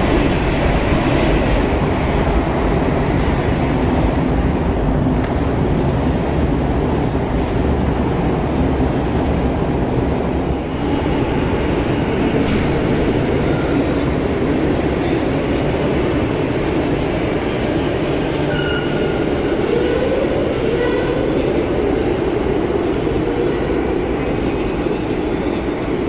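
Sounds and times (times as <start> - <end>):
train rumbling: 0.0 - 26.0.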